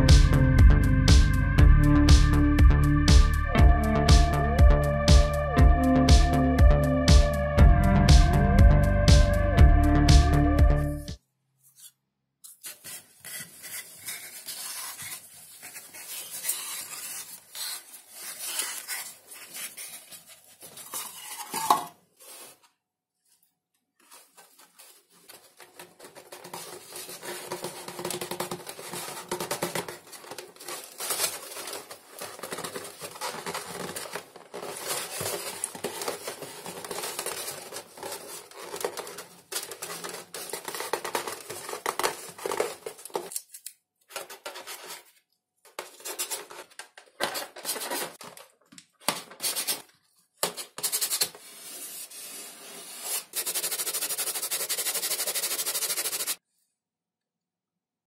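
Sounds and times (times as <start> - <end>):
foam sheets crackling: 24.0 - 43.3.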